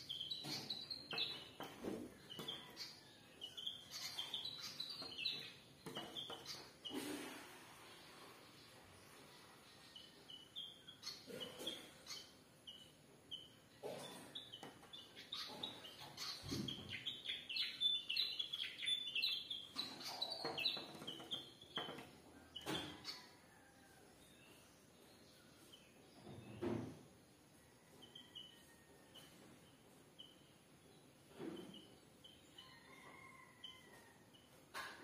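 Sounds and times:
birds chirping: 8.6 - 23.6.

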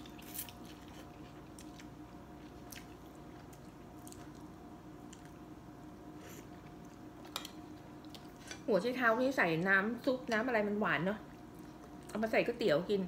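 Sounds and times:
quiet chewing: 0.0 - 5.4, 6.2 - 8.6, 11.3 - 12.2
faint steady hum: 0.0 - 13.0.

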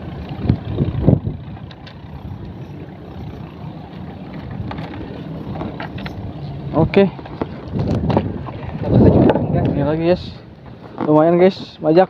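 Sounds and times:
steady low rumble: 0.0 - 11.8
chain weights clicking: 1.6 - 6.8.

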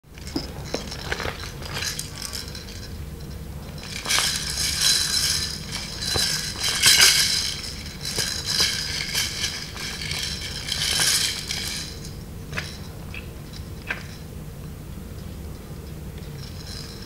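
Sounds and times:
plastic bag crinkling: 3.8 - 12.0
plastic rattles clattering: 3.8 - 12.0.

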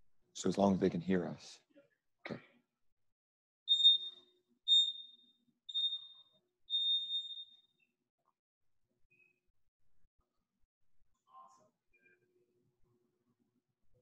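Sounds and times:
electronic timer beeping: 3.7 - 7.6.

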